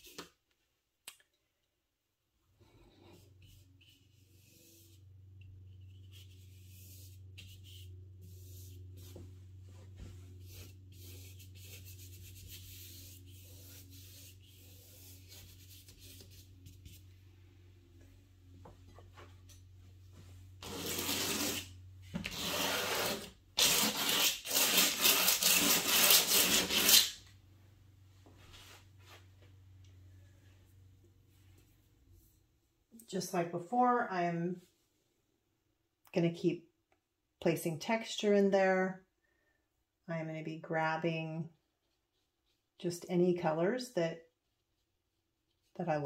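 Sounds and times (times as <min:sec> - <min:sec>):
low steady hum: 0:02.1 - 0:34.6
paintbrush scratching on paper: 0:03.0 - 0:17.1, 0:20.6 - 0:21.7
rough rubbing: 0:20.6 - 0:27.2.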